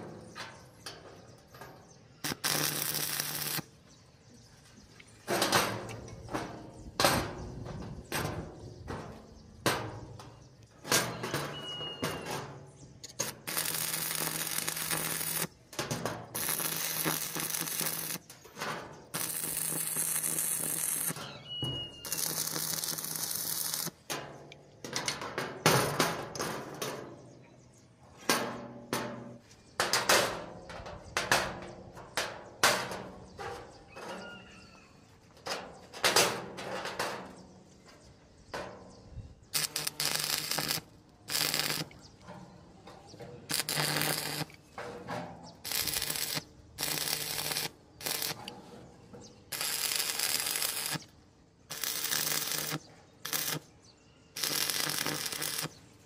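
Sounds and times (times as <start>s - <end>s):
arc welding crackle: 2.2s - 3.7s, 13.1s - 21.2s, 22.0s - 24.1s, 39.5s - 42.0s, 43.5s - 44.6s, 45.6s - 48.4s, 49.5s - 56.0s.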